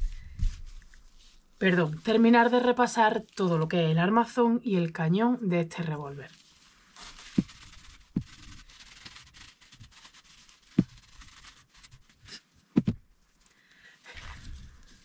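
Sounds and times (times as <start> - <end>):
cloth rubbing on steel: 0.0 - 3.8, 6.1 - 13.4.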